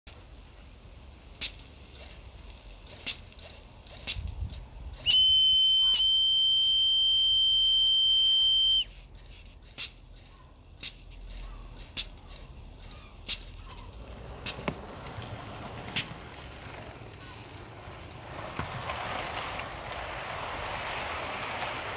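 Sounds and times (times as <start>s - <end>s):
light clicks and ticks: 1.5s - 5.1s, 9.0s - 13.9s
high-pitched whistle tone: 5.0s - 9.0s.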